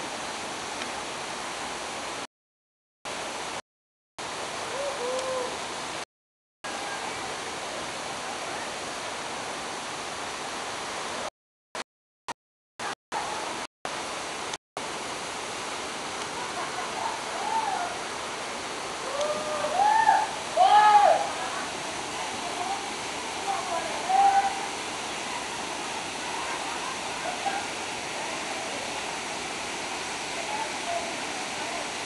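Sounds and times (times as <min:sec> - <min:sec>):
waterfall rushing: 0:13.2 - 0:32.0.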